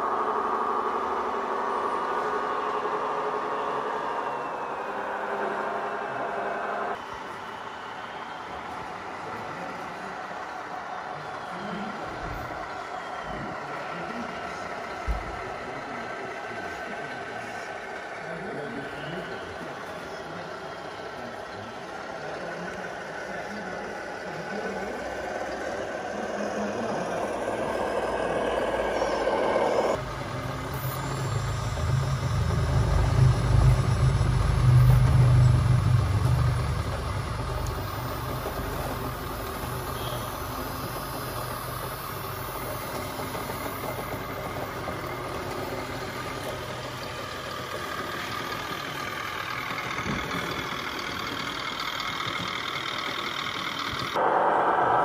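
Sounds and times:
model truck engine drone: 0.0s - 55.0s
deep rumble: 26.5s - 47.0s.

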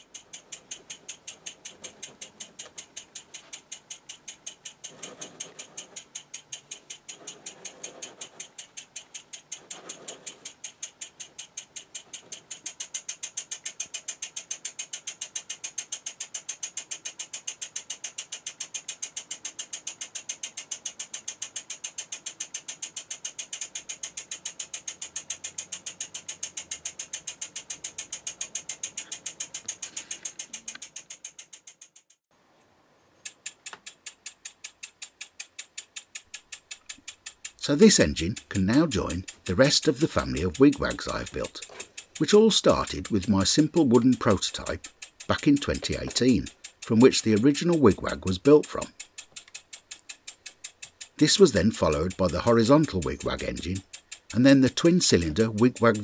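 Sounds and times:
model steam engine puffing: 4.5s - 31.2s.

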